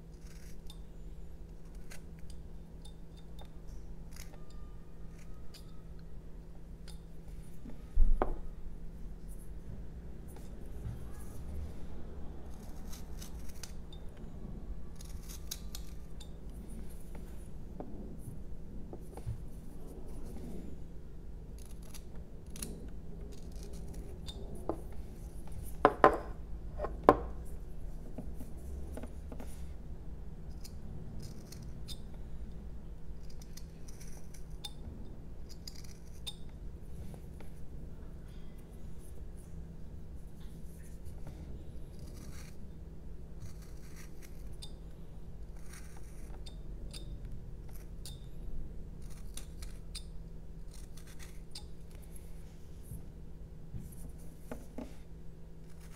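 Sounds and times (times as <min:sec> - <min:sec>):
knife carving wood: 0:00.0 - 0:05.8, 0:12.4 - 0:14.0, 0:14.8 - 0:17.2, 0:21.5 - 0:27.4, 0:30.5 - 0:32.0, 0:33.2 - 0:34.8, 0:35.4 - 0:36.6, 0:40.6 - 0:42.7, 0:43.4 - 0:44.8, 0:45.4 - 0:52.4, 0:53.8 - 0:55.9.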